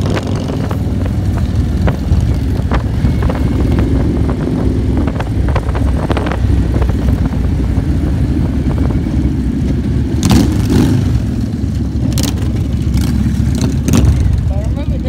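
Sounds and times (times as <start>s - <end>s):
wind rush on microphone: 0.0s - 11.3s
motorcycle engine: 0.0s - 15.0s.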